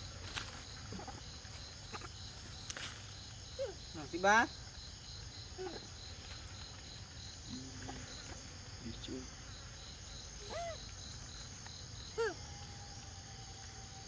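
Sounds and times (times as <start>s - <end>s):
insect chirring: 0.0s - 14.0s
young monkeys squeaking: 10.4s - 11.0s.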